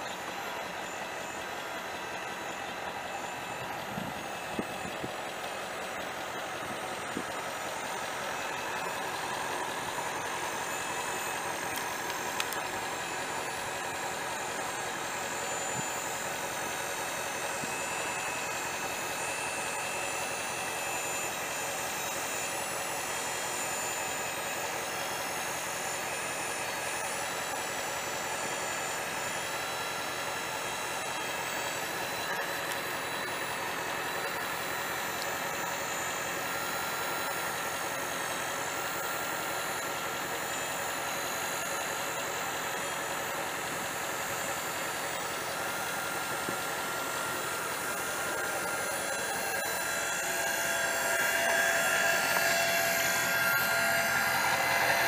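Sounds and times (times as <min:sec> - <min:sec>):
diesel engine idling: 0:00.0 - 0:23.7, 0:24.5 - 0:55.0.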